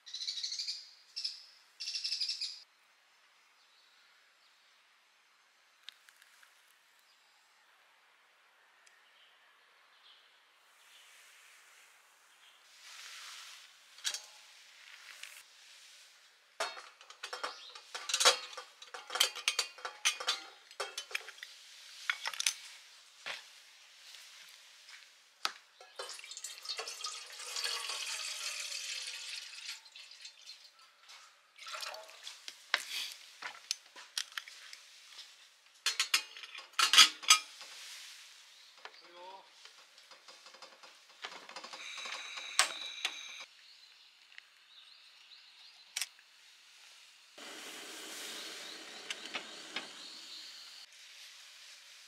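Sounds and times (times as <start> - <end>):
metal kettle lid clinks: 16.6 - 21.3
water pouring into kettle: 26.0 - 30.8, 31.6 - 32.3, 47.4 - 50.4.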